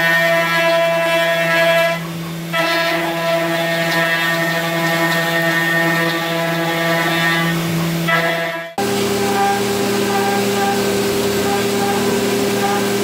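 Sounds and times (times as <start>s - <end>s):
milling cutter whine: 0.0s - 13.0s.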